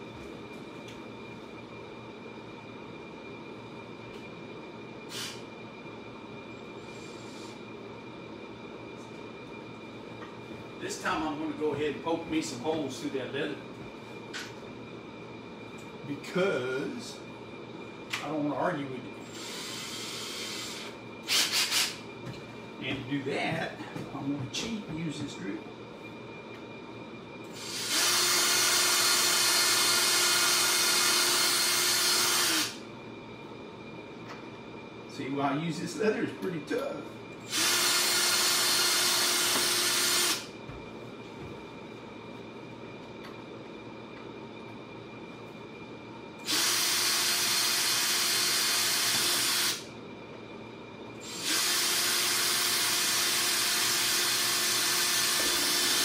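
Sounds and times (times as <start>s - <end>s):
cordless drill drilling leather: 19.3s - 22.0s, 27.6s - 32.8s, 37.5s - 40.5s, 46.4s - 49.8s, 51.2s - 56.0s.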